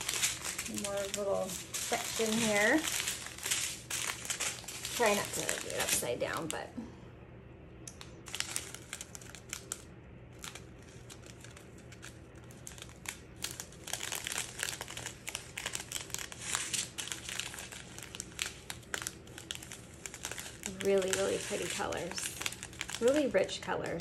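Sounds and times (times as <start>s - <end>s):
plastic bags crinkling: 0.0s - 6.7s, 8.0s - 24.0s.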